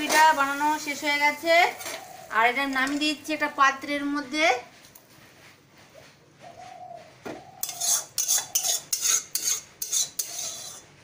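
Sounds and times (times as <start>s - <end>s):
metal spatula scraping a pan: 0.0s - 3.2s, 7.5s - 11.0s
metal spatula knocking: 7.6s - 10.8s.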